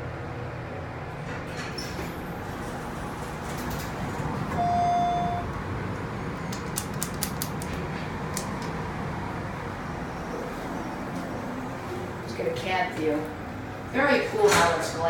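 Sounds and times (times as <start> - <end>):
elevator electronic beep: 4.5 - 5.6.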